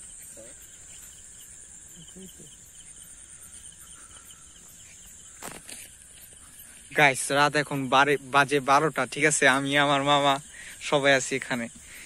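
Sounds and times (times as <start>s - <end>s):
cricket chirping in pulses: 0.0s - 12.0s
insects trilling: 0.0s - 12.0s.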